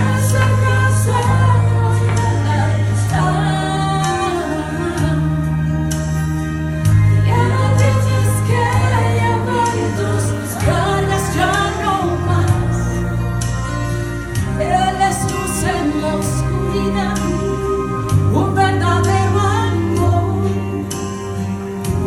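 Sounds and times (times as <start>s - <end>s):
woman singing into microphone: 0.0s - 6.0s, 7.2s - 13.6s, 14.4s - 22.0s
musical accompaniment with bass: 0.0s - 22.0s.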